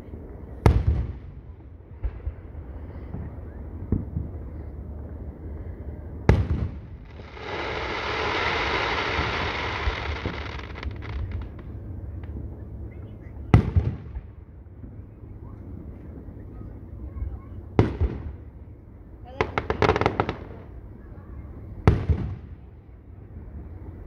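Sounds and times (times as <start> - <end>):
firework bangs: 6.3 - 11.8, 17.8 - 18.4, 19.4 - 20.7, 21.8 - 22.6
firework crackles: 6.3 - 12.4, 19.4 - 20.8
firework hiss: 7.0 - 11.6.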